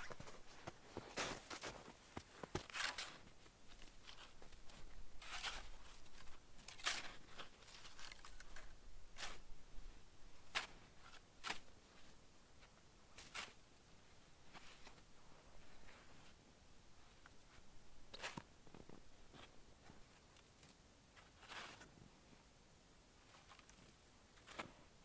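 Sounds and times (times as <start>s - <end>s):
footsteps crunching in snow: 0.0s - 8.4s
snow shovel scraping snow: 2.4s - 3.3s, 5.2s - 8.0s, 21.2s - 21.9s.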